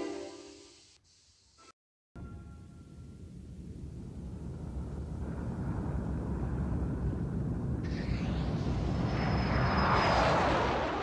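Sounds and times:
high hiss: 0.0s - 1.8s
rocket engine rumble: 2.9s - 11.0s.

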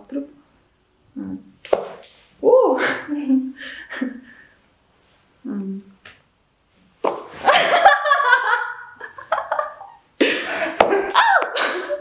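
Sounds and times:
women laughing: 7.4s - 12.0s.

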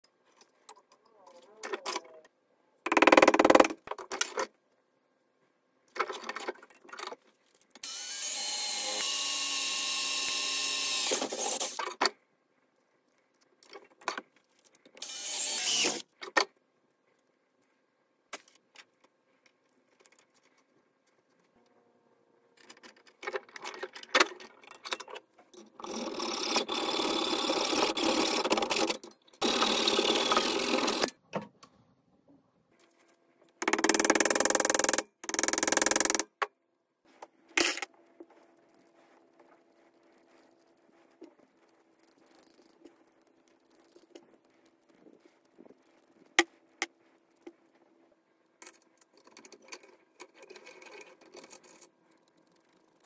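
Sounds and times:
power tool running: 7.8s - 11.8s, 15.0s - 16.0s.

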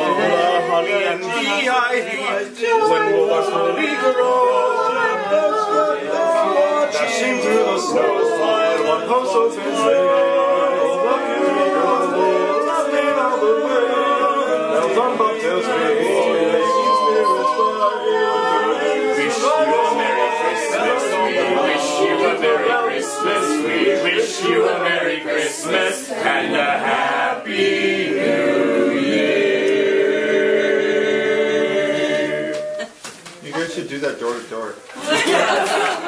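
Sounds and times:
choir singing a cappella: 0.0s - 33.0s.

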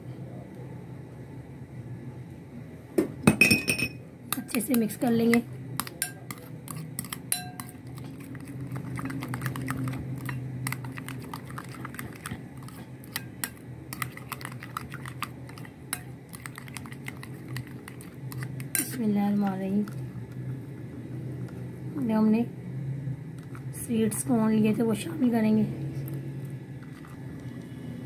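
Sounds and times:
low steady hum: 0.0s - 28.0s
metal spoon scraping glass bowl: 4.4s - 19.0s.

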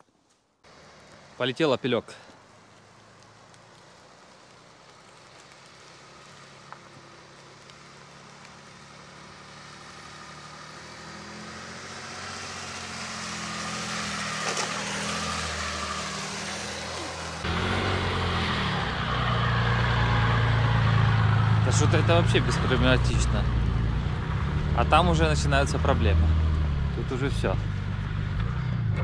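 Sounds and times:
car engine pulling uphill: 0.6s - 29.0s
tyre noise on dirt: 12.2s - 17.9s.

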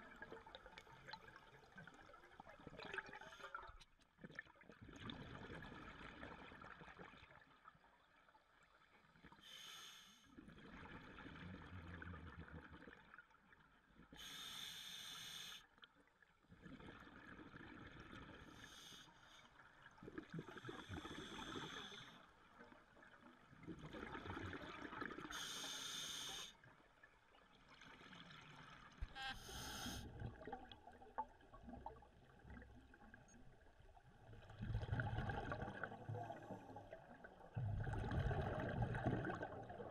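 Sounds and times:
regulator inhalation hiss: 14.2s - 15.6s, 25.4s - 26.5s, 29.4s - 30.0s.

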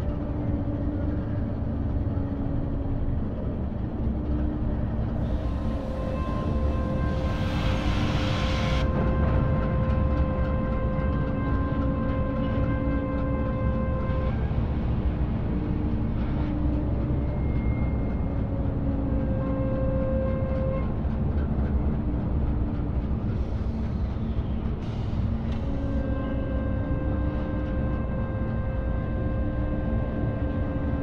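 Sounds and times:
freight train rumbling: 0.0s - 31.0s.

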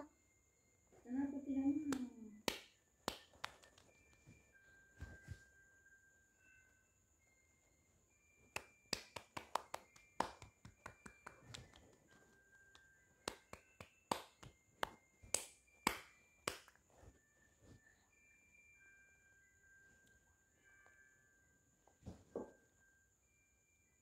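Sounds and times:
fingertips tapping on phone: 8.6s - 15.5s.

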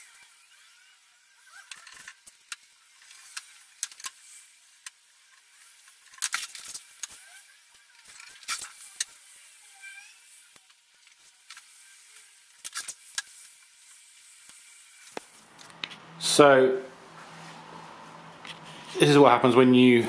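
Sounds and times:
masking tape ripping: 12.6s - 13.4s.

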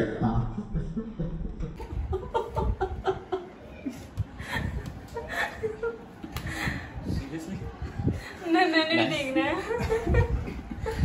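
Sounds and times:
woman laughing: 0.7s - 6.1s.

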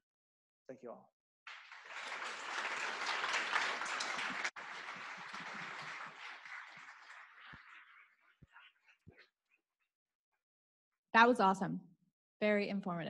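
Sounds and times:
audience applauding: 1.5s - 9.2s.

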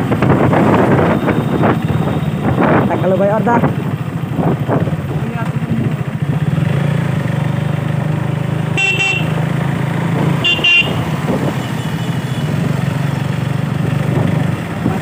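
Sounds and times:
motorcycle engine running: 0.0s - 15.0s
horn beeps: 1.0s - 3.0s, 8.7s - 9.4s, 10.4s - 12.7s.

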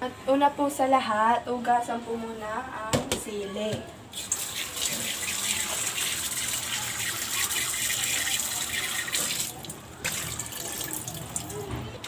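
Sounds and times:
tap water splashing into sink: 4.2s - 11.8s.

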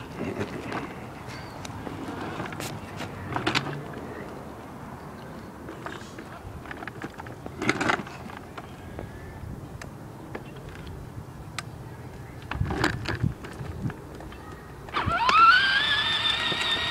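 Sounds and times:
rough scuffs: 1.3s - 3.3s
plastic wheels crackling on asphalt: 5.2s - 8.8s, 12.1s - 16.9s.

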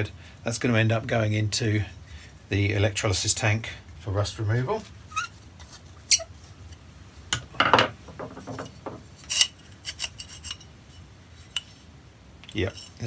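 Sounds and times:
metal parts clinking and scraping: 7.6s - 10.7s.

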